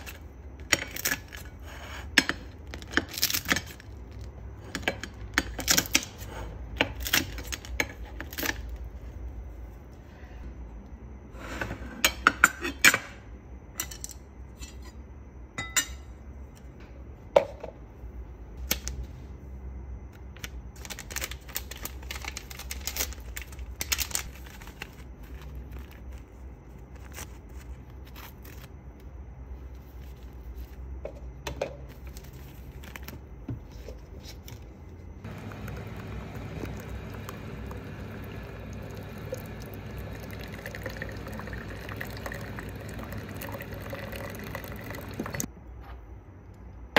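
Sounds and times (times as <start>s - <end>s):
water pouring into a cup: 35.2s - 45.5s.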